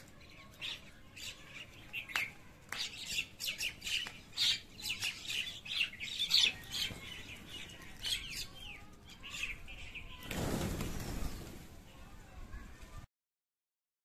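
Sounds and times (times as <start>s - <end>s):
birds chirping and squawking: 0.0s - 11.6s
wings flapping: 10.2s - 11.8s.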